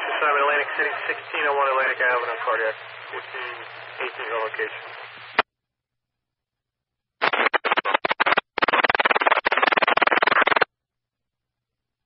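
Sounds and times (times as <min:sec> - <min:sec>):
radio static crackling: 0:00.0 - 0:05.4, 0:07.2 - 0:10.7.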